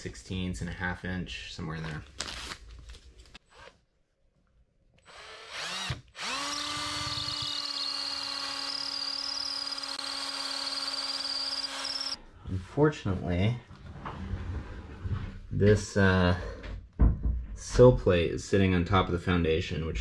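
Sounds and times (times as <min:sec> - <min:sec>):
cordless drill whining: 0:03.4 - 0:03.8, 0:05.0 - 0:12.2.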